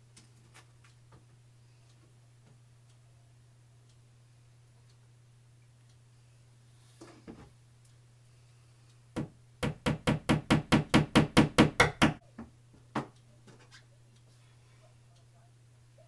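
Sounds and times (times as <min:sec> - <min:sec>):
hammer striking a nail: 0:09.2 - 0:12.2.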